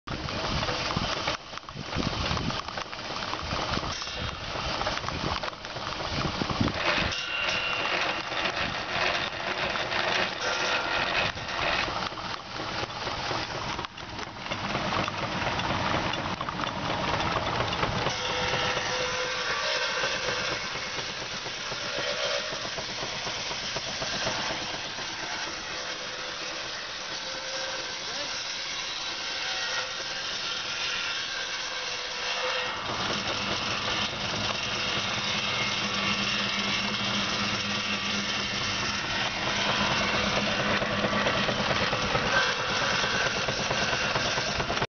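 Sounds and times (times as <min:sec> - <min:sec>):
steam hissing: 0:00.1 - 0:44.8
steam engine running: 0:00.1 - 0:44.9.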